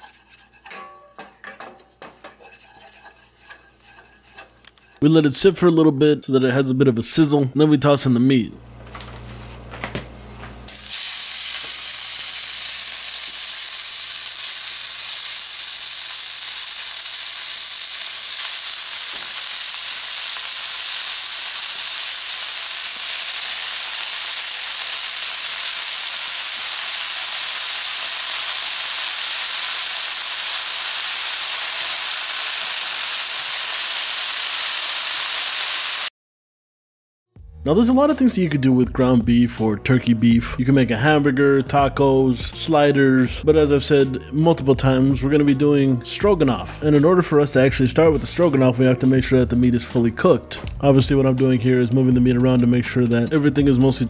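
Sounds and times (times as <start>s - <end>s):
meat sizzling in a frying pan: 10.7s - 36.1s.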